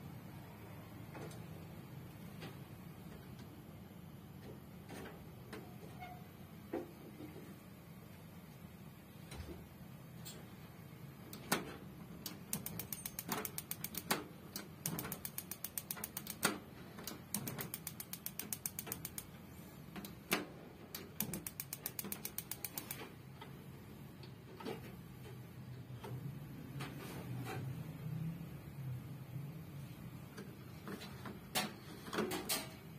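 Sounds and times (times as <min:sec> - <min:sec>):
gas stove control clicking: 0:12.2 - 0:19.3, 0:20.9 - 0:23.0.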